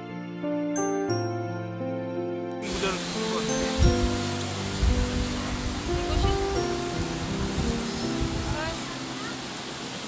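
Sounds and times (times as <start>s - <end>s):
steady hiss: 2.6s - 10.0s.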